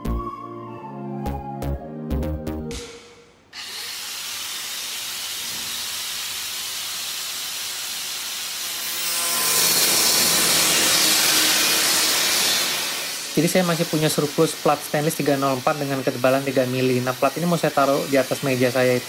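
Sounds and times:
power tool grinding: 3.6 - 6.3, 8.3 - 18.1.

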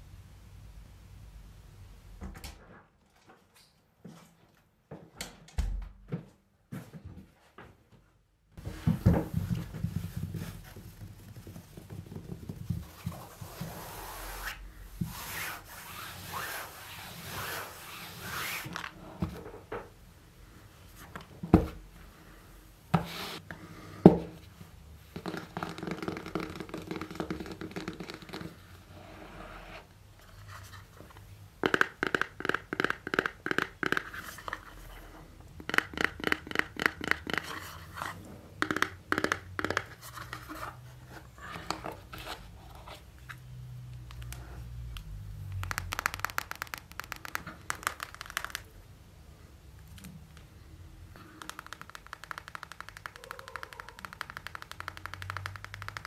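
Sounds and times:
hands rubbing and tearing packaging: 45.4 - 48.7, 51.2 - 56.0
fast even tapping: 51.2 - 56.0.

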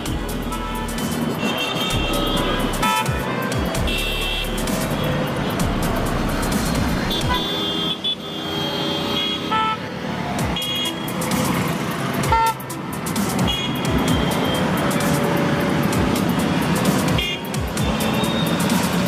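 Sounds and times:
background music: 0.0 - 19.0
traffic engines running: 0.0 - 19.0
vehicle horns honking: 0.3 - 5.6, 7.0 - 9.9, 10.5 - 11.2, 12.3 - 12.7, 13.4 - 15.0, 17.0 - 18.8.

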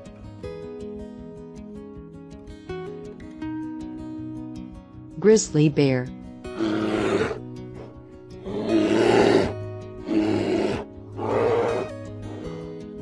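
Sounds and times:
background music: 0.0 - 13.0
bear roaring: 6.5 - 12.8.

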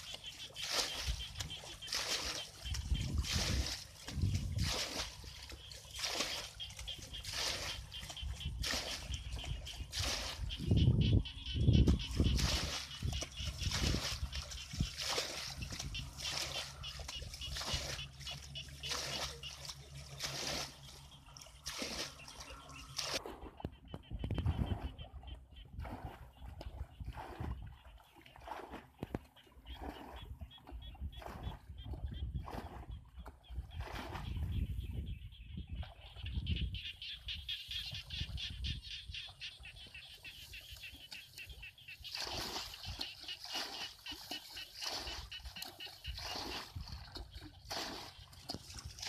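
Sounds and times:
water splashing: 0.0 - 49.0.

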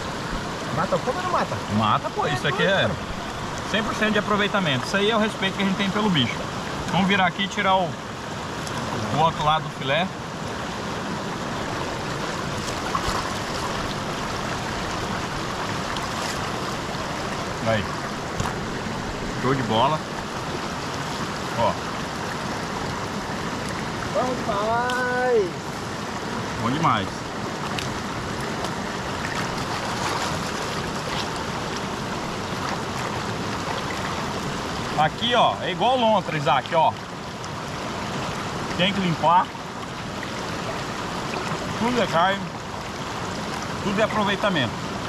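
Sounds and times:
river water over rapids: 0.0 - 45.0
stream rushing over rocks: 0.0 - 45.0.

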